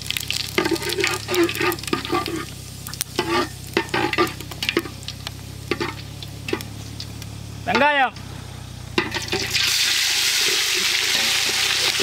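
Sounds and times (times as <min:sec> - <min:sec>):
seeds crackling in frying oil: 0:00.0 - 0:12.0
ladle scraping metal pot: 0:00.6 - 0:05.0, 0:05.7 - 0:06.9, 0:09.0 - 0:12.0.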